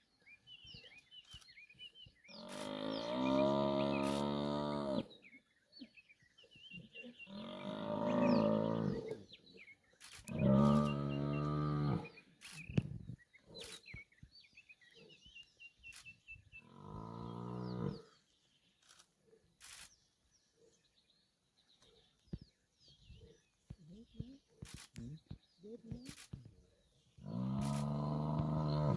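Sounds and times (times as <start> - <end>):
faint birds chirping: 0.0 - 28.9.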